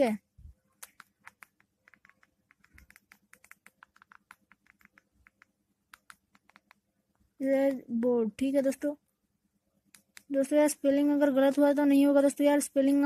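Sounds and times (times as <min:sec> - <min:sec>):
phone keypad buttons clicking: 0:00.9 - 0:06.8.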